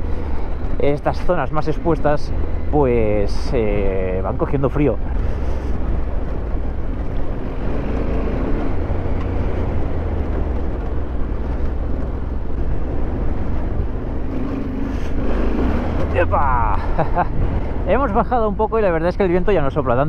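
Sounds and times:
wind buffeting microphone: 4.4 - 18.8.

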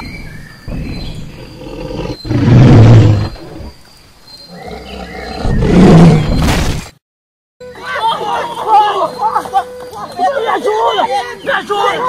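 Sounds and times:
dinosaur roars: 0.8 - 3.7.

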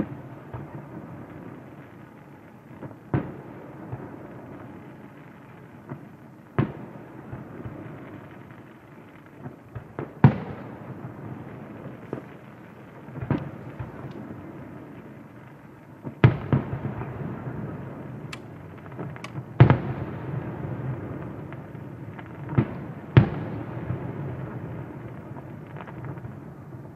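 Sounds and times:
small firework pops and cracks: 0.0 - 26.9
firework shells bursting: 18.2 - 19.8.

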